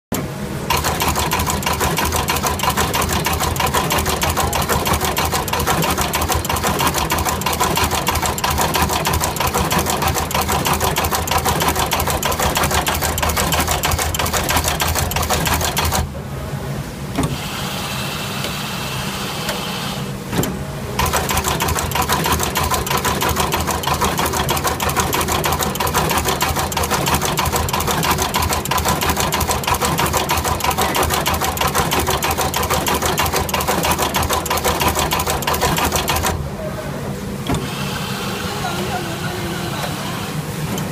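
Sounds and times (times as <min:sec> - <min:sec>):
rapid mechanical clatter: 0:00.7 - 0:16.1, 0:21.0 - 0:36.4.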